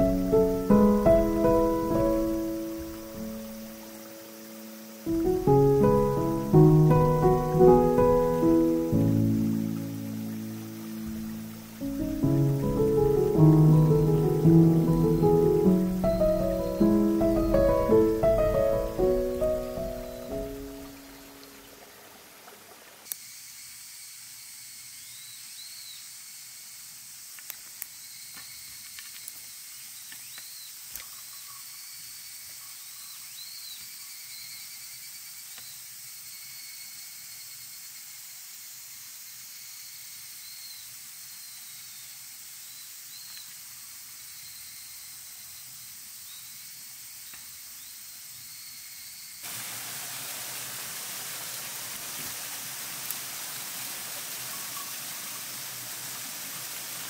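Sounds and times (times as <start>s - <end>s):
flowing water rushing: 0.0s - 23.1s, 49.4s - 57.0s.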